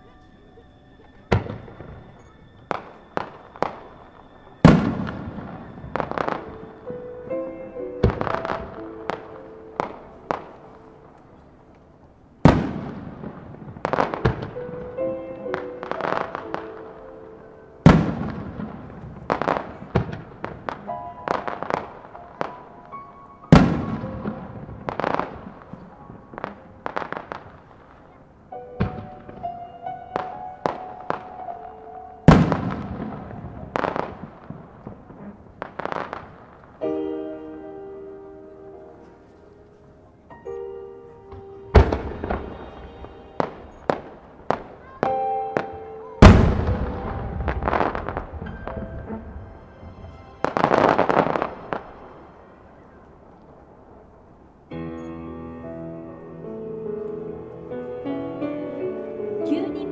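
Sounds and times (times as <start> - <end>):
background music: 0.0 - 59.9
sharp firework cracks: 1.3 - 6.8, 12.4 - 17.1, 17.8 - 22.7, 23.5 - 28.2, 32.2 - 36.9, 41.3 - 49.2, 49.8 - 54.0
firework shell booms: 4.6 - 6.6, 12.4 - 14.6, 23.5 - 25.8, 32.3 - 36.5, 46.2 - 49.2.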